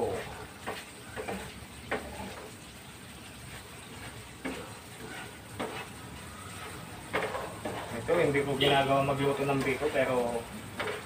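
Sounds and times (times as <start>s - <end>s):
liquid hissing in frying pan: 0.0s - 11.0s
spatula scraping pan: 0.0s - 11.0s.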